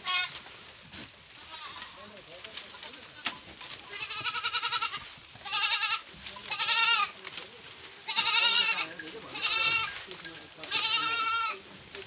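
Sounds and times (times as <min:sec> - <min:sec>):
goats bleating: 0:00.0 - 0:00.4, 0:01.4 - 0:02.1, 0:02.7 - 0:07.2, 0:08.0 - 0:11.8.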